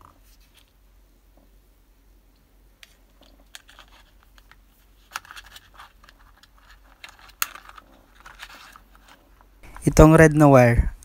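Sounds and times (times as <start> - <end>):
wires clicking on plastic box: 2.8 - 9.2.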